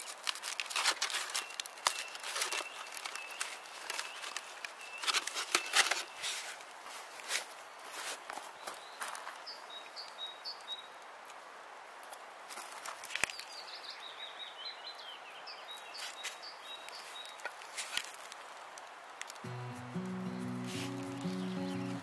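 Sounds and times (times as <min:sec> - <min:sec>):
small bird chirping: 0:19.5 - 0:22.0.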